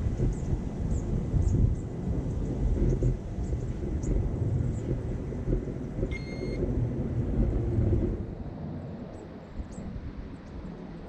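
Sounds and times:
wind buffeting microphone: 0:00.0 - 0:11.0
short high electronic beep: 0:06.1 - 0:06.6.

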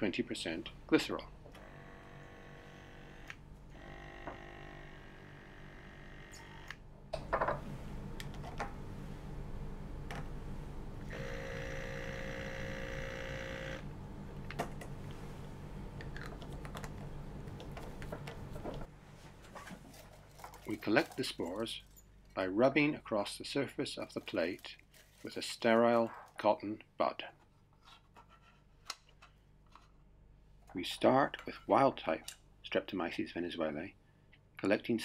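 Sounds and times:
steady low hum: 0:00.0 - 0:24.7.

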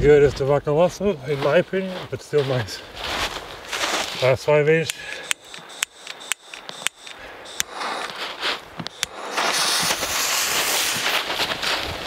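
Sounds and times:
fuse crackling: 0:03.6 - 0:12.0.

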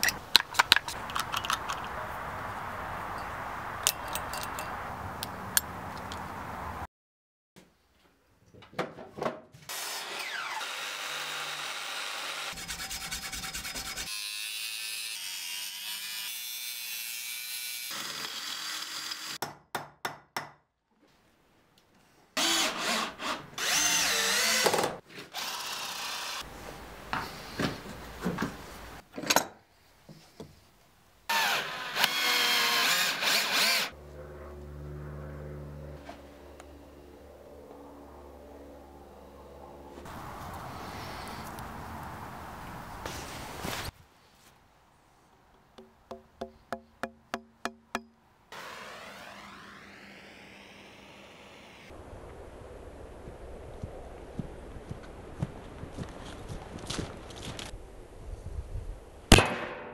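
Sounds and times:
mitre saw cutting: 0:09.7 - 0:19.4, 0:22.4 - 0:26.5, 0:31.3 - 0:34.0.

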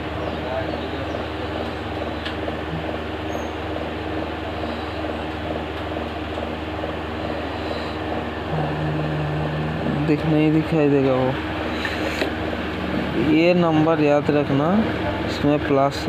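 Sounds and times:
steady low tone: 0:00.0 - 0:11.7
low electrical hum: 0:00.0 - 0:16.0.

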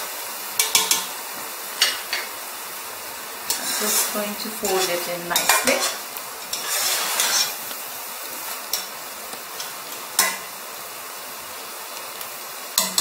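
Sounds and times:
sizzling hiss: 0:00.0 - 0:13.0
spatula scraping rustle: 0:03.4 - 0:10.5.

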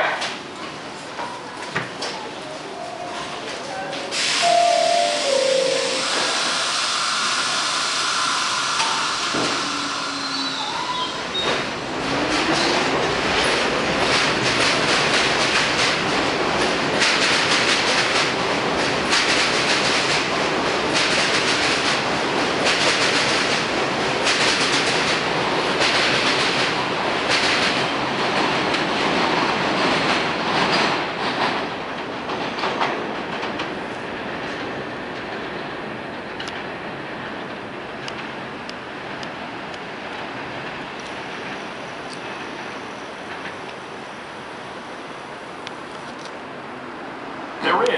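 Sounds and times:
train motor whine: 0:04.4 - 0:10.8.

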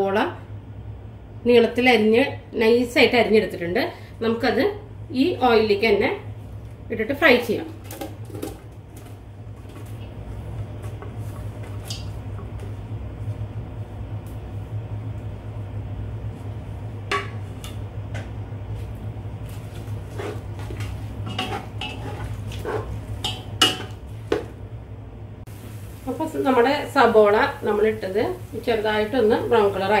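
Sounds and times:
spatula scraping a pot: 0:19.7 - 0:23.4
onions frying in oil: 0:25.5 - 0:30.0.

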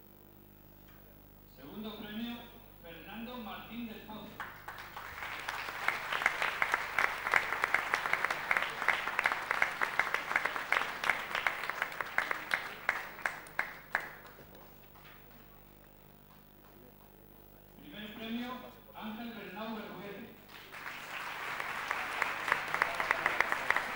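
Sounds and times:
small group applauding: 0:04.4 - 0:17.1, 0:20.5 - 0:23.9.

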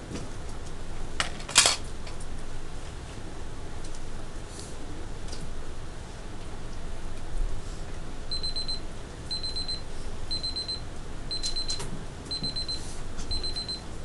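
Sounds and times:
digital timer alarm beeping: 0:08.3 - 0:13.8.

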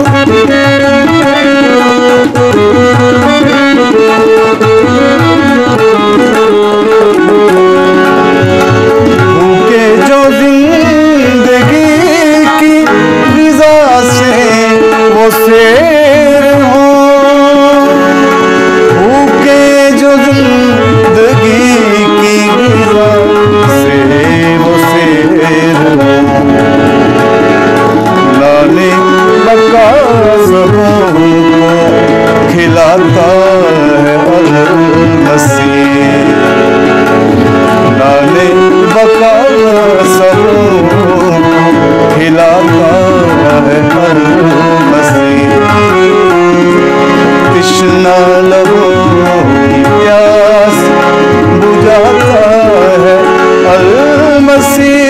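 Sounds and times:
held accompanying notes: 0:00.0 - 0:55.0
person singing: 0:00.0 - 0:55.0
tabla drumming: 0:00.0 - 0:55.0.

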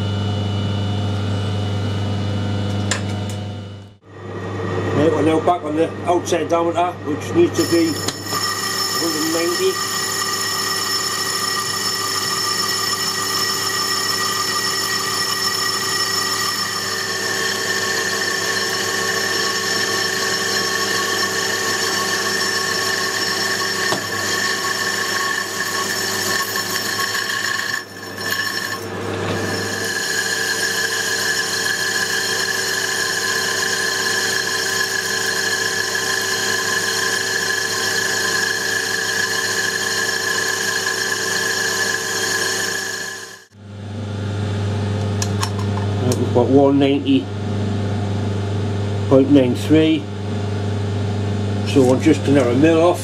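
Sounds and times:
metal lathe whining: 0:04.1 - 0:43.6, 0:51.6 - 0:53.0.

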